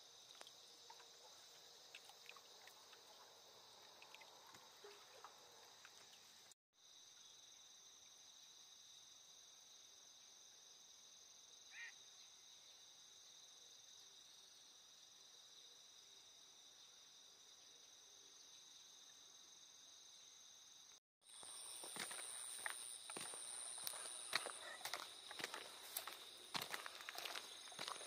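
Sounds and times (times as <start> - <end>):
insect chorus trilling: 11.4 - 28.0.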